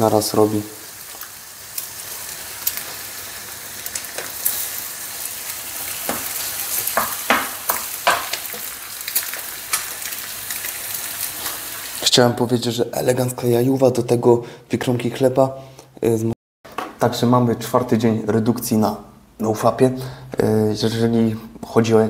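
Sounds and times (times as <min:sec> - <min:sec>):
eggs sizzling in a frying pan: 0:00.0 - 0:12.1.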